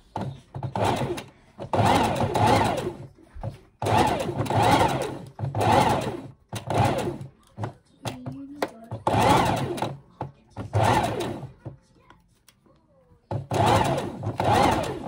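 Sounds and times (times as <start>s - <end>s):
sewing machine running: 0.0s - 3.2s, 3.8s - 8.2s, 9.0s - 10.0s, 10.6s - 11.6s, 13.3s - 15.0s.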